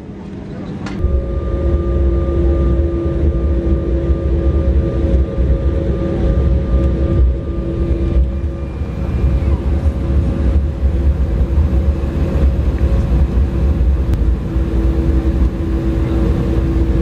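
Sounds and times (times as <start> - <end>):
jet engines whining: 0.0 - 17.0
wheels rumbling on runway: 0.0 - 17.0.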